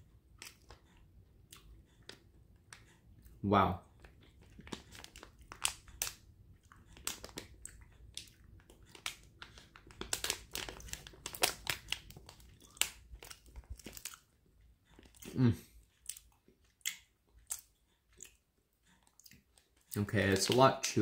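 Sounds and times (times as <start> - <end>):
plastic wrapper crinkling: 4.4 - 14.2.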